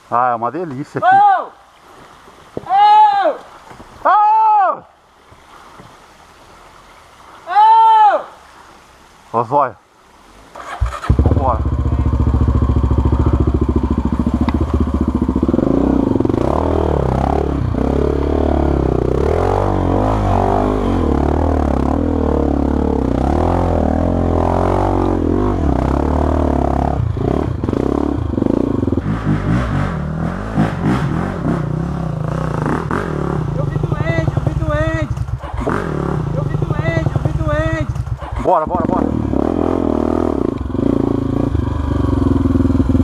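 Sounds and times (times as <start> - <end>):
motorcycle engine pulling under load: 10.6 - 19.2.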